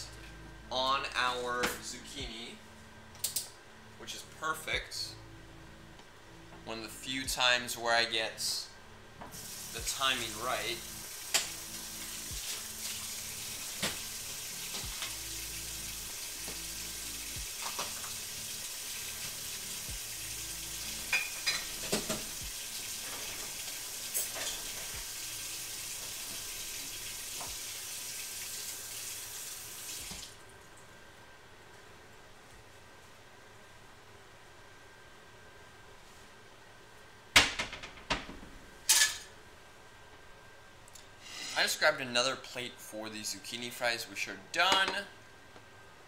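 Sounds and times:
dishes clinking: 21.1s - 22.2s.

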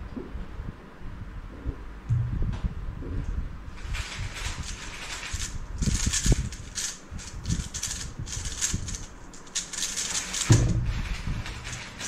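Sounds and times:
puzzle cube clicking: 4.7s - 10.5s
thump: 10.5s - 11.0s.

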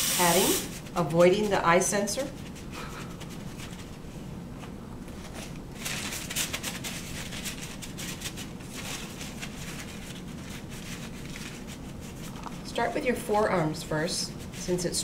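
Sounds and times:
low room hum: 0.0s - 15.0s
paper towel rustling: 2.2s - 13.3s.

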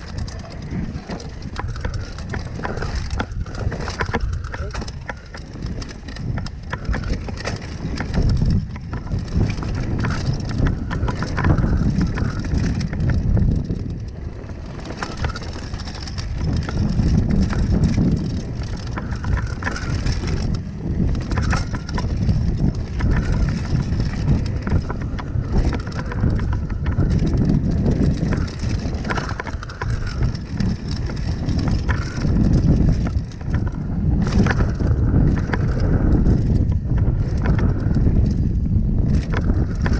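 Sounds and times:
bike clattering over bumps: 0.0s - 39.9s
wind on microphone: 0.0s - 39.9s.

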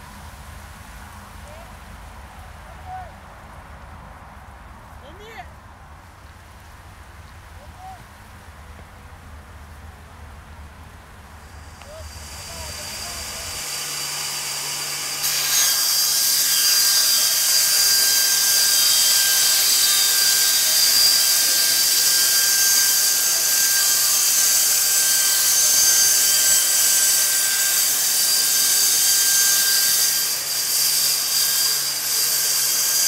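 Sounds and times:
band saw cutting wood: 11.6s - 33.0s.

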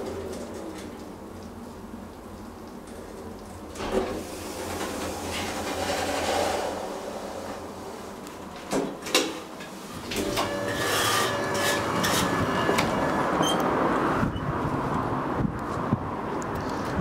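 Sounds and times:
elevator doors sliding with scrape: 3.7s - 8.7s, 9.7s - 14.6s.

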